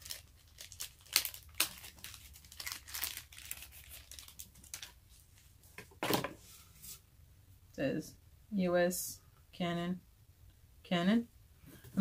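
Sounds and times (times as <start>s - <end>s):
plastic packaging crackling: 0.0s - 5.1s.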